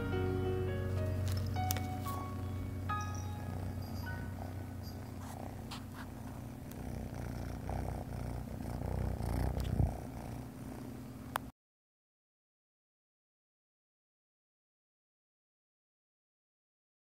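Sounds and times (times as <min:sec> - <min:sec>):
kitten purring: 0:01.0 - 0:11.5.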